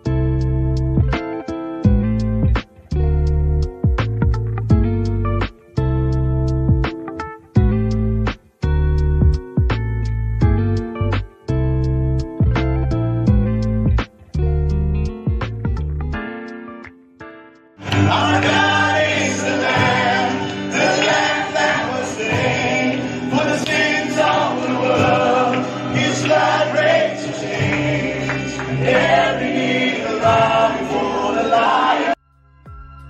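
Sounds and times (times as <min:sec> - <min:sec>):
live band with electric guitar: 0:00.0 - 0:17.0, 0:17.8 - 0:29.1
congregation singing: 0:17.8 - 0:32.2.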